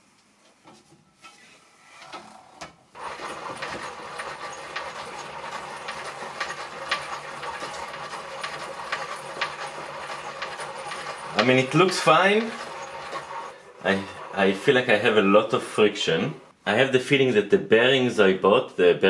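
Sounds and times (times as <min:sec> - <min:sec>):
lathe mechanism rattling hum: 0:02.0 - 0:16.5.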